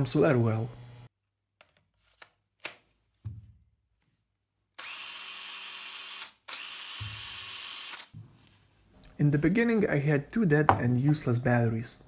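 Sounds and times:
drill motor running: 0.5 - 1.1, 4.8 - 8.1.

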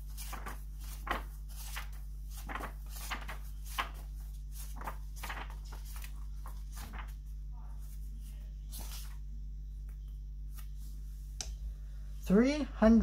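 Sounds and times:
book pages rustling: 0.0 - 9.2.

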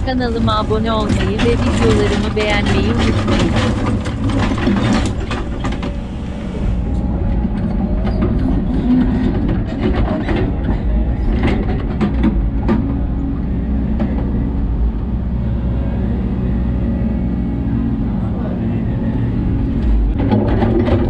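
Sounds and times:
excavator diesel engine running: 0.0 - 21.0
short knocks and clatters: 1.0 - 6.1, 7.6 - 13.1, 19.8 - 21.0.

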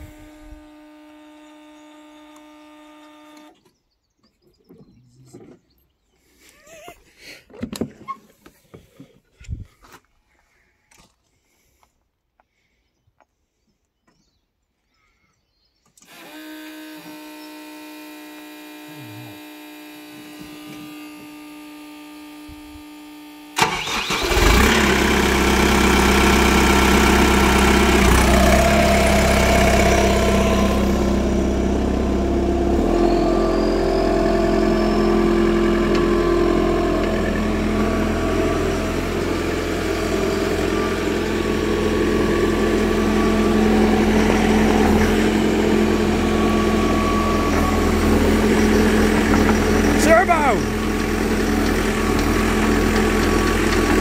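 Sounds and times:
diesel excavator engine starting: 0.0 - 3.6, 16.0 - 21.2, 23.6 - 54.0
diesel engine idling: 23.6 - 54.0.

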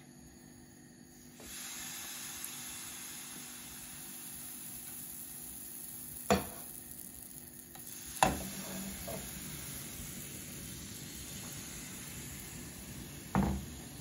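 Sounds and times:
batter sizzling in a frying pan: 1.1 - 14.0.

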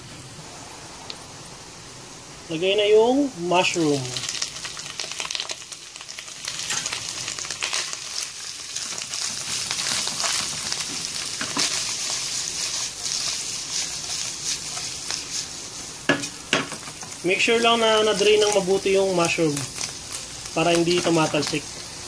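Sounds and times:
mushrooms sizzling in oil: 0.0 - 22.0
spatula scraping pan: 8.8 - 17.2.

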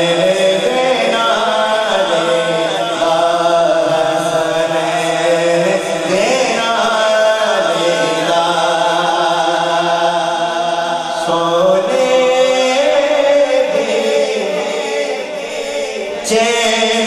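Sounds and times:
man singing devotional song: 0.0 - 17.0.

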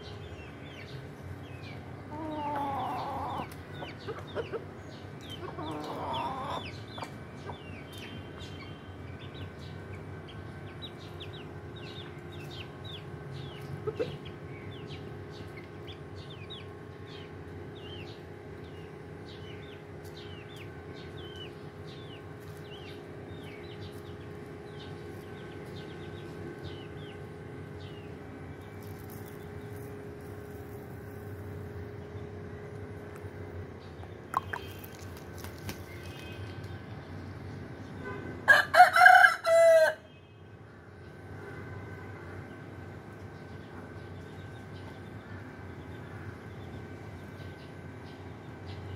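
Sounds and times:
faint hum: 0.0 - 38.2
rooster crowing: 38.5 - 40.1.

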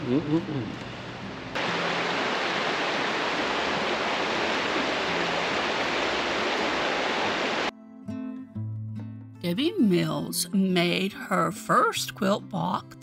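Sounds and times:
river water flowing: 1.5 - 7.7.

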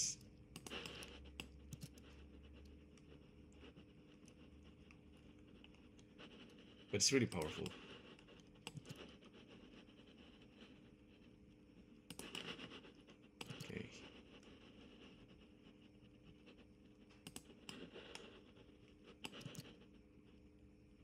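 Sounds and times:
faint room hum: 0.0 - 21.0
mouse and keyboard clicks: 0.5 - 2.0, 7.2 - 7.8, 8.6 - 9.0, 12.1 - 12.6, 17.2 - 18.2, 19.2 - 19.7.

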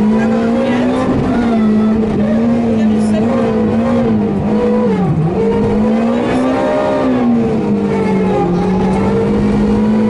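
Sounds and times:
rally car engine revving: 0.0 - 10.0.

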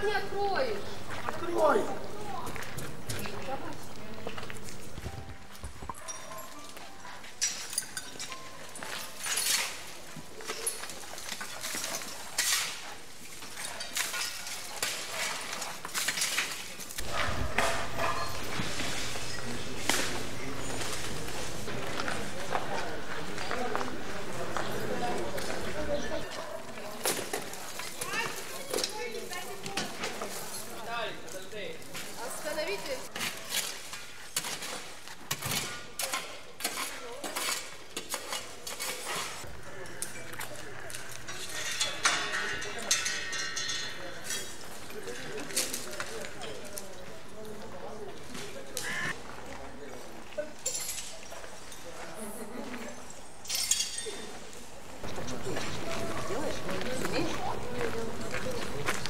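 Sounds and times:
debris clinking and clattering: 40.1 - 46.7, 53.4 - 54.4.

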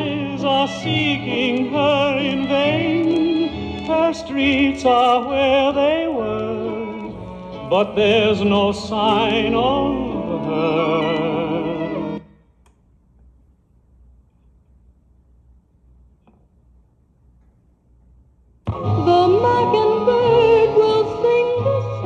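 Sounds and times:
vinyl record music with singer: 0.0 - 12.3, 18.6 - 22.0
faint low background noise: 0.0 - 22.0.

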